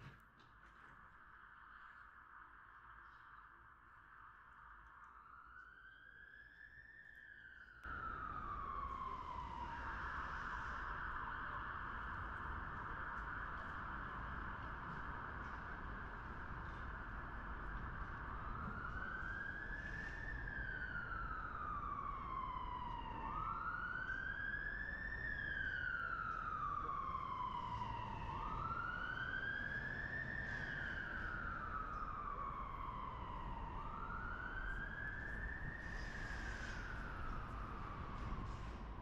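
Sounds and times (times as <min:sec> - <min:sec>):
emergency siren wailing: 0:05.0 - 0:39.0.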